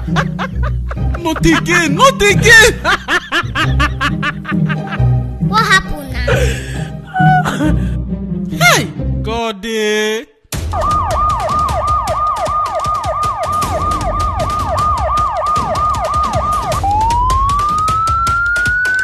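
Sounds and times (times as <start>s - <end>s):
police siren: 10.7s - 19.0s.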